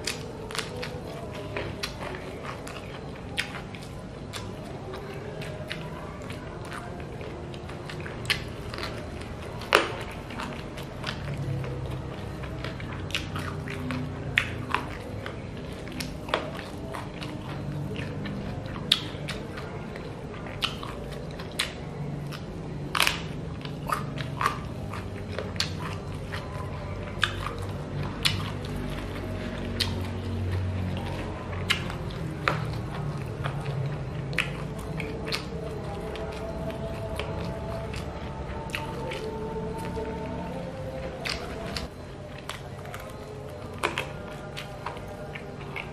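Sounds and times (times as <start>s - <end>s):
person chewing and biting: 0.0s - 45.9s.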